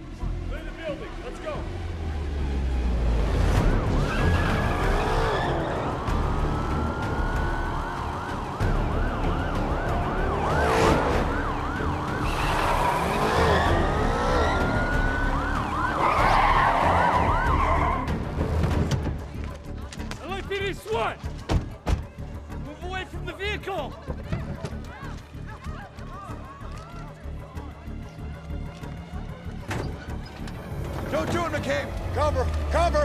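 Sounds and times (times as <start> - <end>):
police car sirens wailing and yelping: 0.7 - 18.8.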